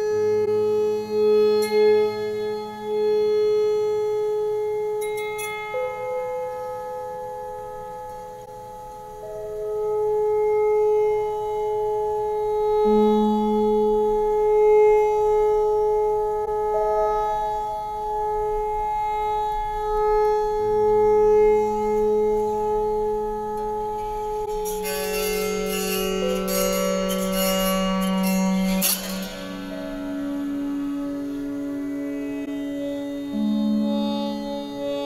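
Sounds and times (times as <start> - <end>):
autoharp drone notes: 0.0 - 35.0
plucked strings: 23.5 - 35.0.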